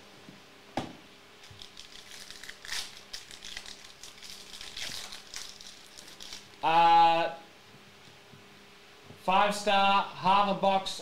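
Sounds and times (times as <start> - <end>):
foil wrapper crinkling: 1.4 - 6.6.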